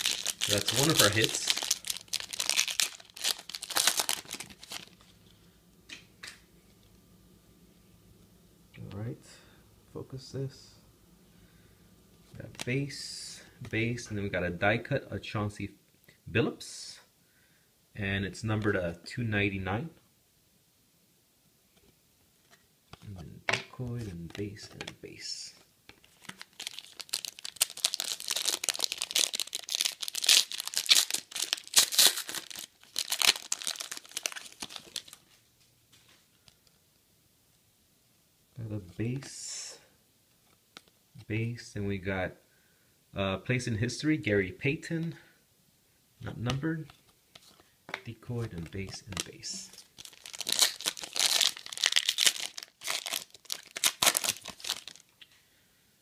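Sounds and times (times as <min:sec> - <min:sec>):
foil wrapper crinkling and tearing: 0:00.0 - 0:05.1, 0:26.0 - 0:35.3, 0:48.6 - 0:55.3.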